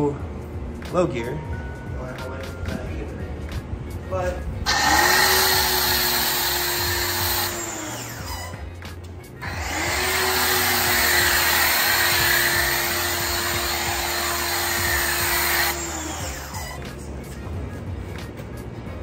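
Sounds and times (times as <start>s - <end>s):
pressure washer motor whining: 4.7s - 8.7s, 9.4s - 16.9s.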